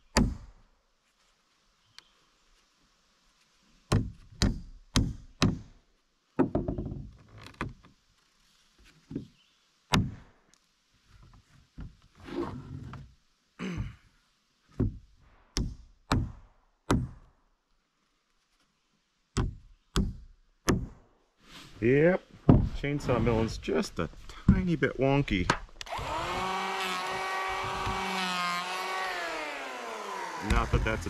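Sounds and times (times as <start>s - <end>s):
hammer driving nails into wood: 27.1s - 28.2s.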